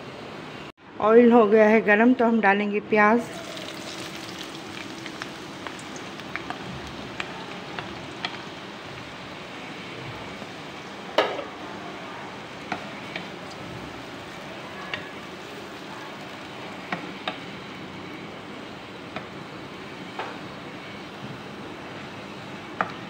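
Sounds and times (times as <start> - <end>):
onions sizzling in oil: 3.2 - 18.8.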